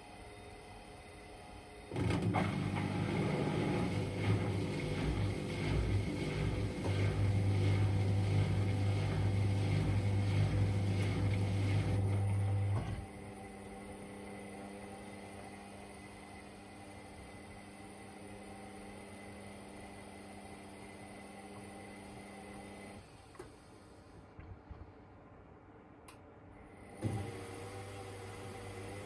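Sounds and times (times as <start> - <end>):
drying fan humming: 1.4 - 17.0
washer dryer drum tumbling: 2.0 - 13.1.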